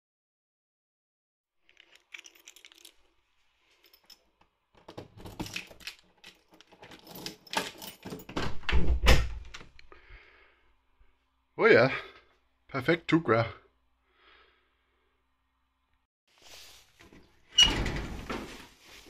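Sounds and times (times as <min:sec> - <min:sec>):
keys jangling: 0:01.7 - 0:04.3, 0:05.1 - 0:08.4
door opening thump: 0:08.3 - 0:09.5.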